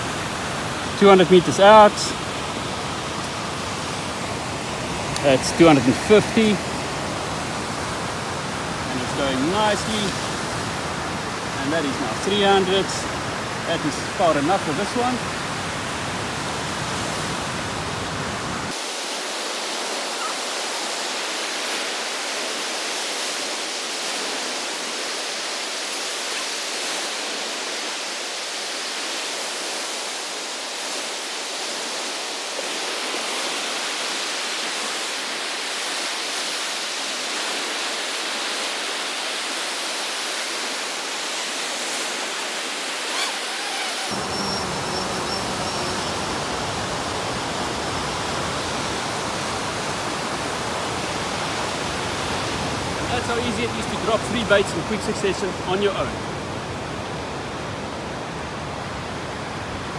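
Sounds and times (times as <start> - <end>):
ocean surf breaking: 0.0 - 59.9.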